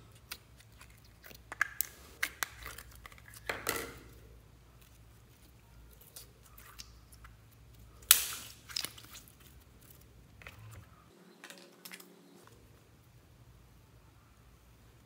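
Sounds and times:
wet slime clicks and crackles: 0.1 - 3.5, 6.0 - 10.0
loud sharp slime pop: 8.0 - 8.6.

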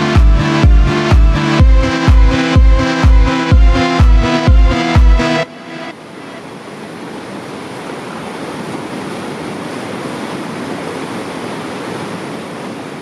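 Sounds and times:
river rushing over rapids: 5.5 - 13.0.

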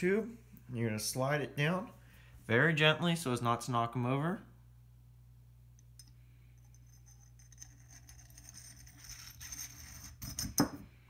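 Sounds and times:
metal scraping on metal: 6.7 - 10.6.

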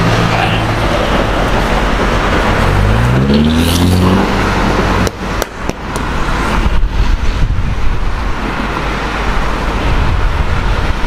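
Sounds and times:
car engine driving off: 0.0 - 6.9
road traffic noise: 0.0 - 11.0.

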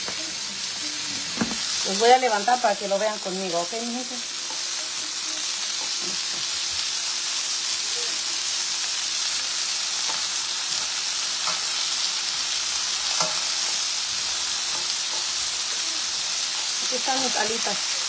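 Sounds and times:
chicken wings sizzling in pan: 0.0 - 18.0
tongs clicking against pan: 11.4 - 11.8, 13.0 - 13.9, 14.5 - 15.8.

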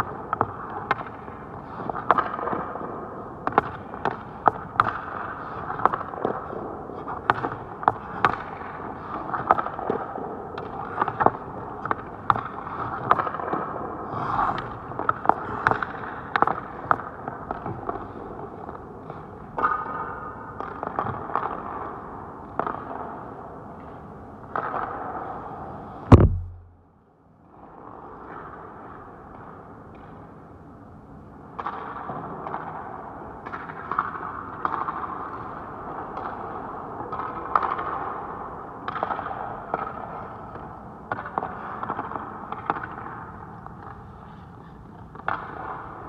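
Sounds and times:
hockey sticks and pucks clacking: 0.0 - 13.9, 14.6 - 25.3, 31.6 - 46.0
loud puck hit: 26.1 - 26.8
rink noise hum: 26.1 - 26.8.

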